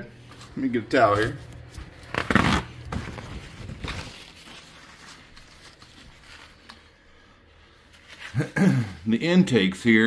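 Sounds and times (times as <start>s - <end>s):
faint rustling and handling: 0.1s - 9.6s.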